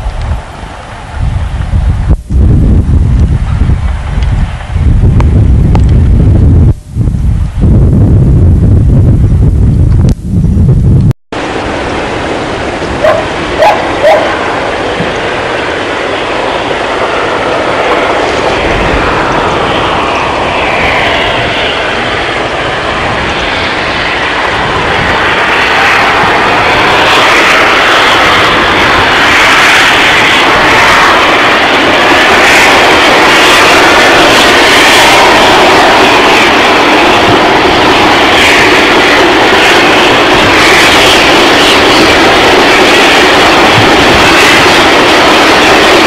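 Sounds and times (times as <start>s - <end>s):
steam locomotive exhaust: 11.4s - 46.0s.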